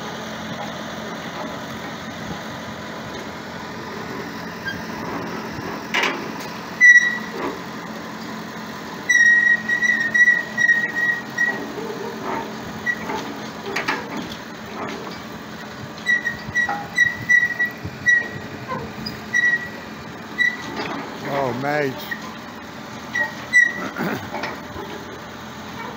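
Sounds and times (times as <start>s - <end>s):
engine running: 0.0s - 25.9s
metallic wheel squeal: 4.0s - 8.0s, 9.0s - 15.3s, 16.0s - 25.9s
clunks rolling over concrete: 9.2s - 19.6s.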